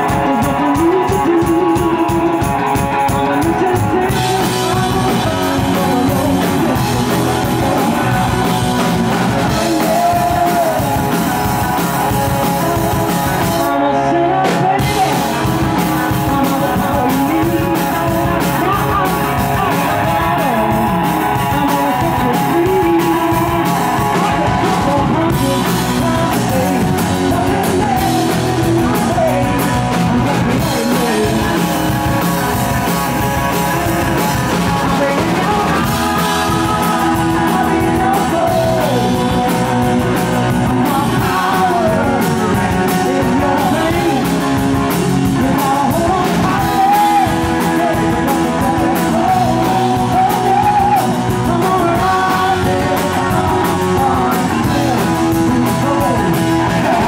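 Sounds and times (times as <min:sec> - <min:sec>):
woman singing: 0:00.0 - 0:08.8, 0:12.0 - 0:57.0
bass guitar: 0:00.0 - 0:57.0
drum kit: 0:00.0 - 0:57.0
electric guitar: 0:00.0 - 0:57.0.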